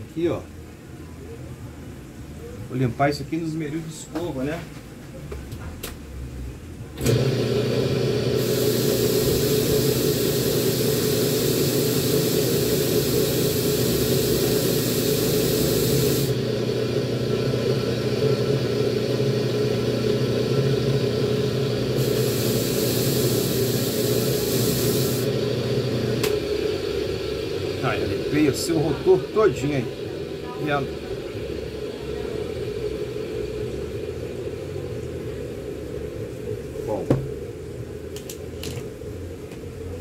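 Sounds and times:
bench grinder running: 7.0s - 33.4s.

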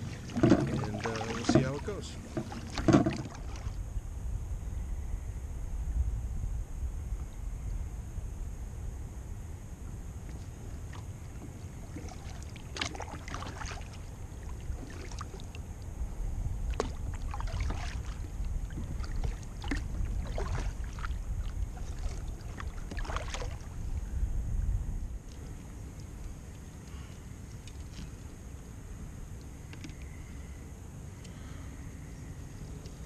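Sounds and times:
kayak paddle splashing: 0.0s - 3.8s, 10.2s - 15.8s, 16.6s - 24.1s
steady low rumble: 0.0s - 33.0s.

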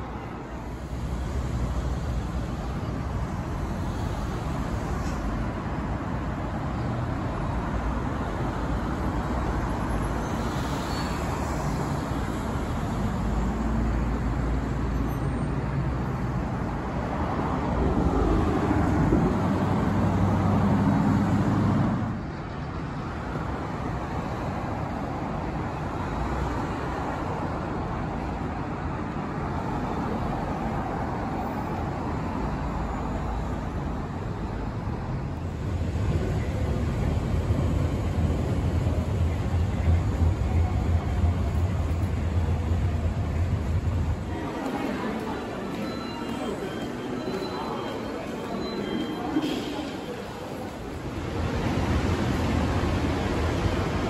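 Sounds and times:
road traffic passing: 0.0s - 54.0s
heavy engine hum: 34.3s - 54.0s.

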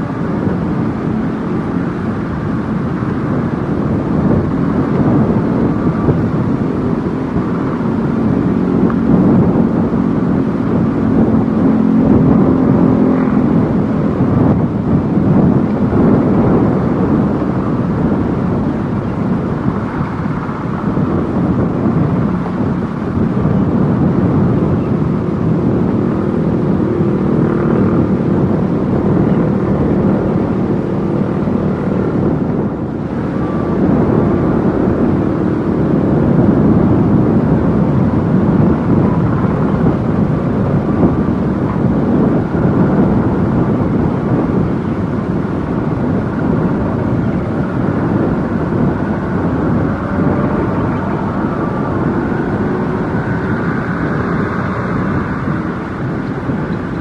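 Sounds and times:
excavator diesel engine running: 46.0s - 57.0s.

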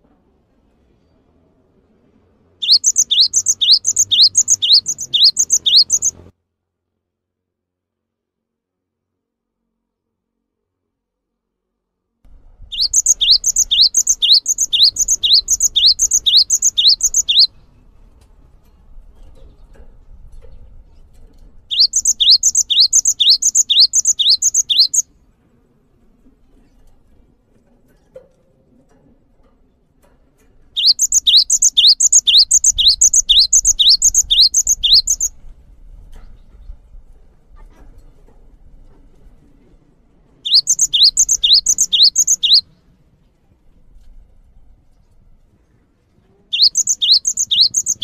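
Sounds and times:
bird singing rising phrase: 2.6s - 6.2s, 12.7s - 17.5s, 21.7s - 25.0s, 30.8s - 35.3s, 40.5s - 42.6s, 46.6s - 48.0s.

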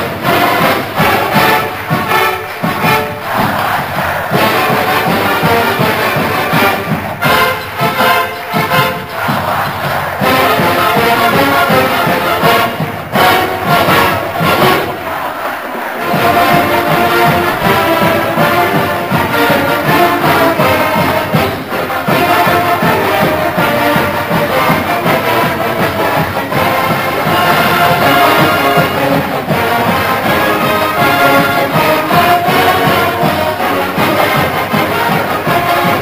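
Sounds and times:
marching band brass: 0.0s - 36.0s
steady drum beat: 0.0s - 36.0s.

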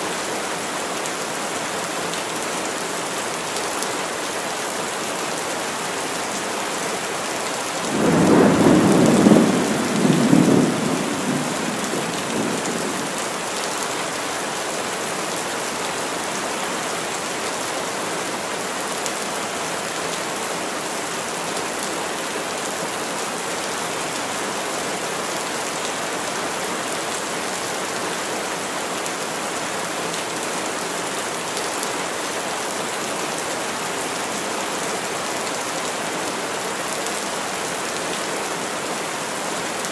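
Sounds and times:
heavy rain falling: 0.0s - 39.9s
thunder rolling: 8.0s - 12.9s.

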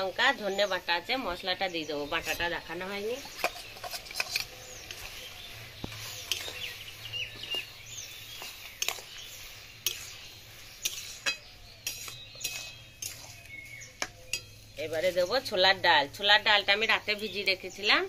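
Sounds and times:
metal spatula scraping a pan: 2.1s - 15.6s.

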